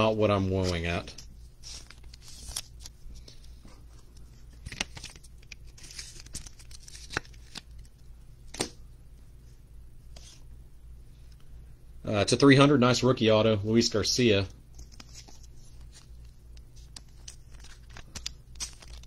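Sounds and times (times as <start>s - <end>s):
rustling of cards and plastic: 0.0s - 8.7s, 14.7s - 19.0s.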